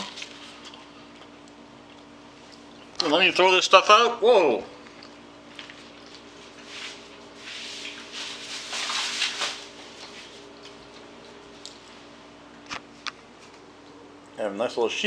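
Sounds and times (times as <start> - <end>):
steady hum: 0.0 - 15.0
food packaging rustling: 5.5 - 11.7.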